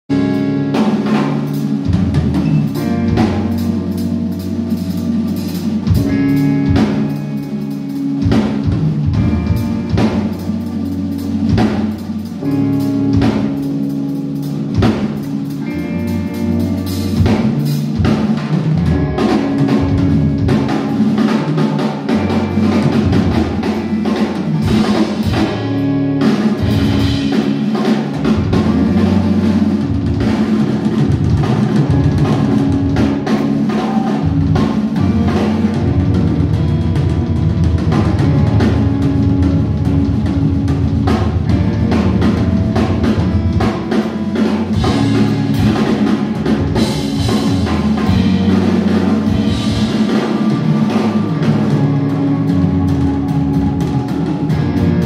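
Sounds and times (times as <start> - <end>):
drum kit solo: 0.1 - 55.0
sustained low notes: 0.1 - 55.0.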